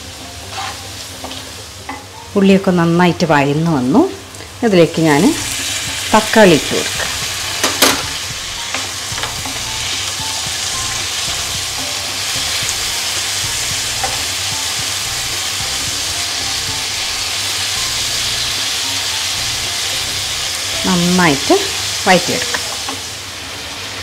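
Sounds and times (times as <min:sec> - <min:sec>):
vegetables sizzling in a wok: 0:00.0 - 0:24.0
spatula knocking: 0:07.0 - 0:16.8.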